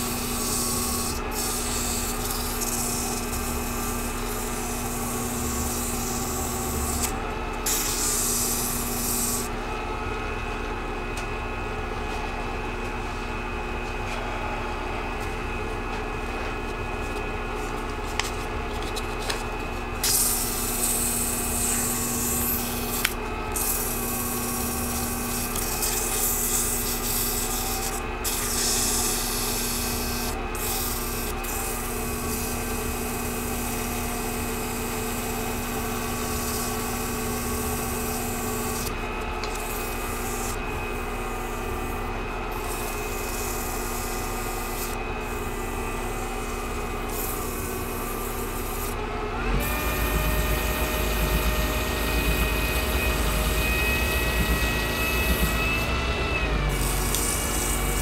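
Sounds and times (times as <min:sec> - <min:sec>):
sandpaper rubbing on spinning acrylic: 0:00.0 - 0:07.1
lathe motor hum: 0:00.0 - 0:10.3, 0:17.2 - 0:58.0.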